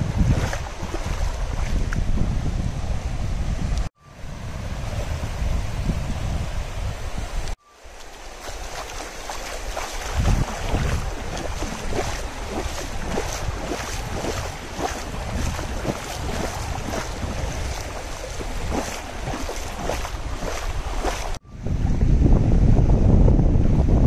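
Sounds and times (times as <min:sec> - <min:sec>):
small waves lapping on mud: 0:00.0 - 0:02.1, 0:07.8 - 0:21.4
wind buffeting microphone: 0:00.0 - 0:07.6, 0:08.2 - 0:24.0.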